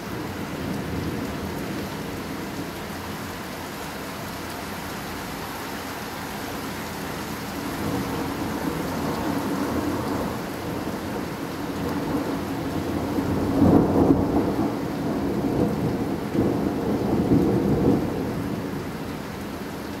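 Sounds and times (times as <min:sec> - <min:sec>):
steady rain: 0:00.0 - 0:20.0
rolling thunder: 0:07.8 - 0:19.0.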